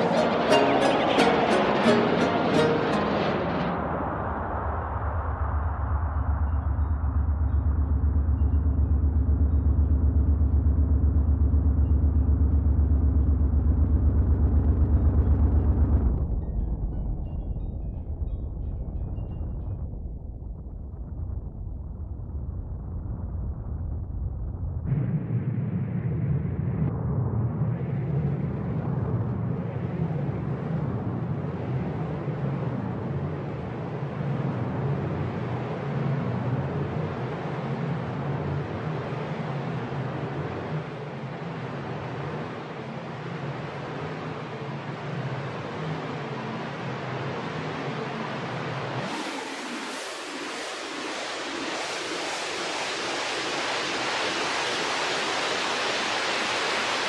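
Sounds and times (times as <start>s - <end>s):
noisy synth delay feedback: 0.0s - 20.3s
pulsing low synthesizer drone: 0.0s - 53.6s.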